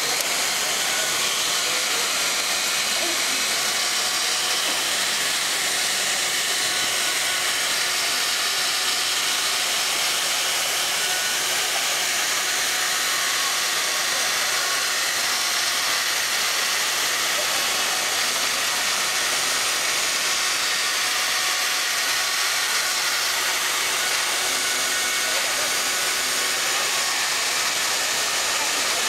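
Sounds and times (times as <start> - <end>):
hot-air blower hissing: 0.0 - 29.0.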